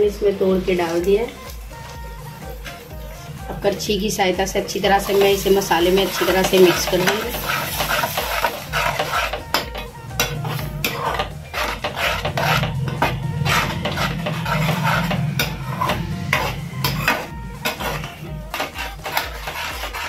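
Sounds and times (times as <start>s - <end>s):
metal ladle scraping steel pan: 4.9s - 20.0s
low hum: 8.5s - 18.6s.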